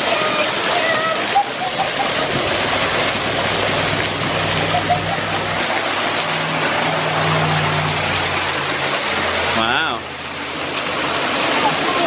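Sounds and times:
waterfall rushing: 0.0 - 12.0
low steady hum: 2.2 - 10.8.

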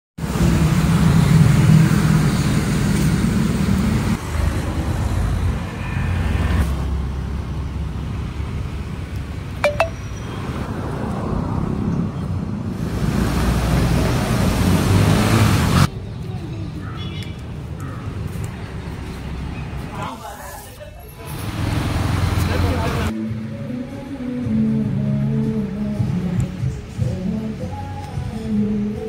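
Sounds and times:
road traffic rumble: 0.2 - 29.0.

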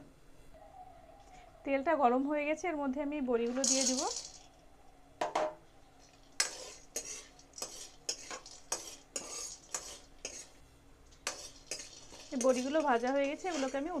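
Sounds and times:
frying in hot oil sizzle: 6.2 - 14.0
steel spoon scraping metal pan: 6.4 - 14.0.

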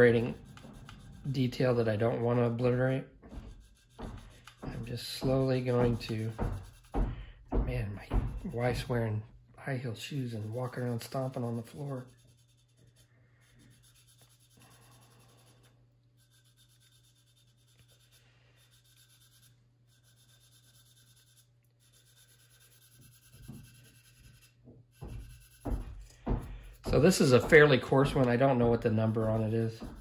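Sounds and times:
sanding stick scratching plastic: 0.0 - 2.7, 3.3 - 7.0, 10.1 - 26.0, 29.0 - 30.0.

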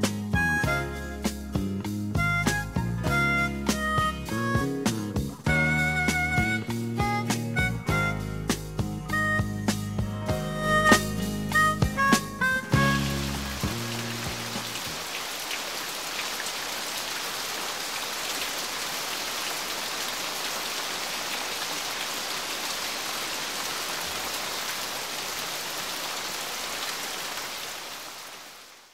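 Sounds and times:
steady rain: 10.3 - 28.9.

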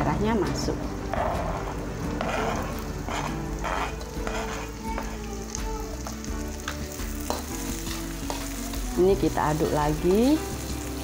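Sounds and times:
chilies sizzling in hot oil: 0.0 - 11.0
spatula scraping wok: 0.9 - 5.4.

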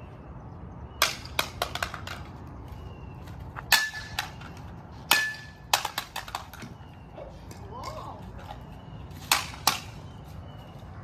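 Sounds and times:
bat hitting plastic on concrete: 1.0 - 2.4, 3.5 - 6.8, 7.4 - 10.1.

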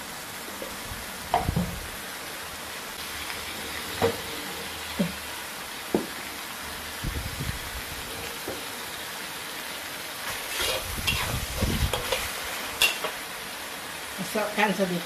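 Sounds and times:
paste sizzling in oil: 0.0 - 15.0
metal ladle scraping a wok: 10.3 - 13.1.

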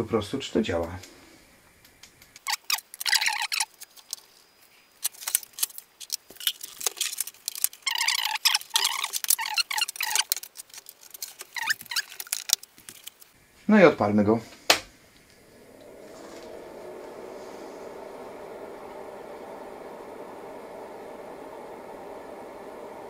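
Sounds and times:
short squeaky scrapes: 2.4 - 3.8, 7.8 - 10.3.

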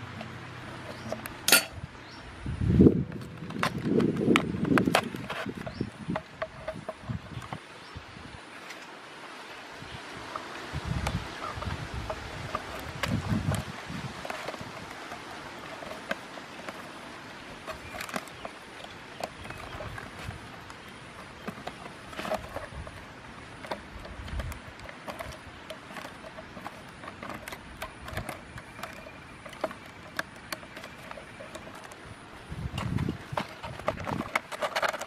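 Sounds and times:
faint outdoor background: 0.0 - 35.0
plastic and wood clicks: 17.6 - 32.0, 32.7 - 35.0.

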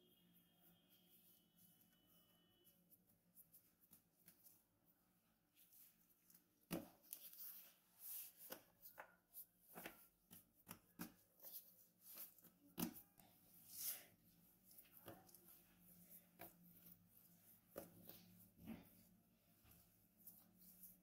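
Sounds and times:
soft knocks and rustles of dough: 5.5 - 13.5, 14.1 - 21.0.

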